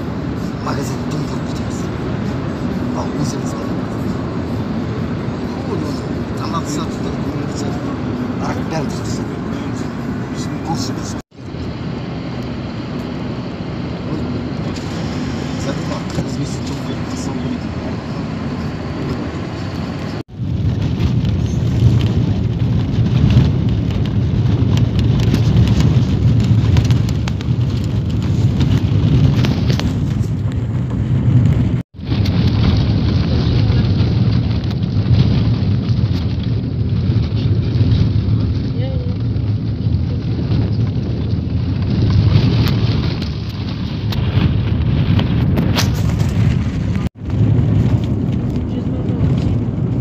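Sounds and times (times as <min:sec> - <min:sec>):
car driving rumble: 0:00.0 - 0:50.0
crackling buffeting: 0:00.0 - 0:50.0
road and engine noise in vehicle: 0:00.0 - 0:50.0.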